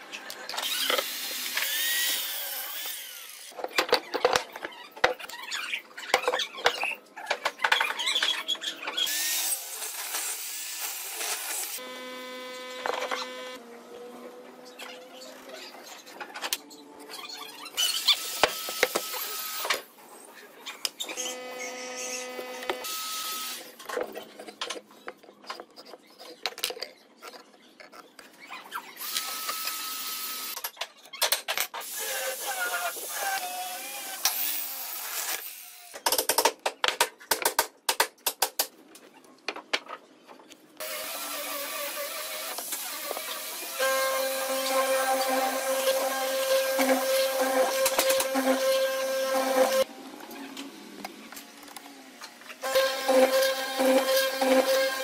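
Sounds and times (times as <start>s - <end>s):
mortising machine motor running: 52.6s - 55.0s.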